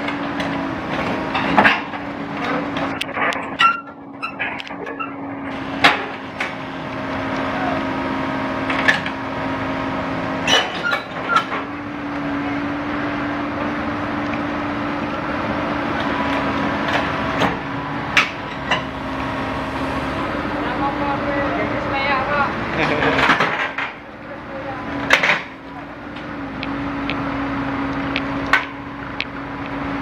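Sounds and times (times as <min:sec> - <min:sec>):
steel tracks clanking on metal: 0:00.0 - 0:06.8, 0:10.4 - 0:11.8, 0:16.0 - 0:20.2, 0:22.5 - 0:24.2
excavator diesel engine humming: 0:00.0 - 0:30.0.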